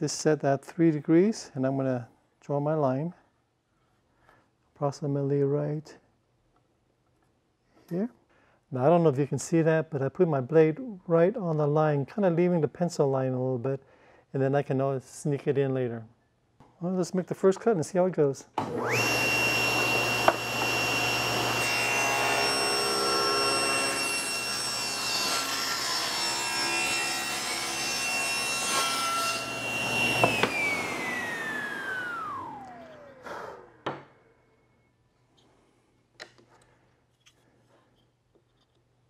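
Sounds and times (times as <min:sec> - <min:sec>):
saw blade whine spinning down: 0:18.6 - 0:24.5, 0:28.7 - 0:33.8
table saw cutting wood: 0:18.6 - 0:34.0.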